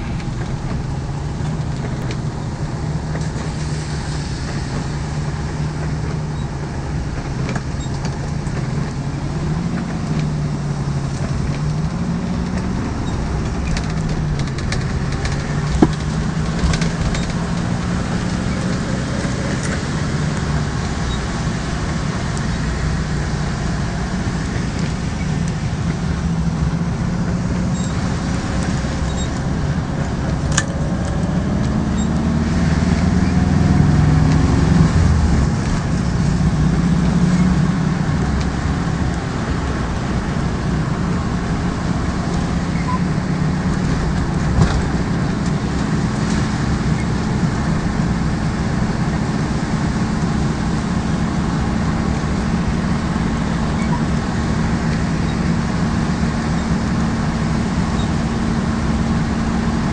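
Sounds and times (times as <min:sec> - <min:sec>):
car engine running: 0:00.0 - 0:59.9
tyres hissing on wet pavement: 0:02.7 - 0:07.0.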